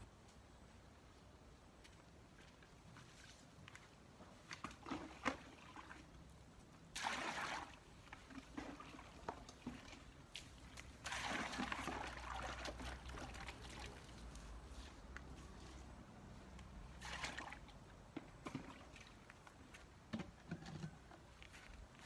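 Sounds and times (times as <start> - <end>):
water splashing: 6.9 - 14.4, 16.9 - 19.4.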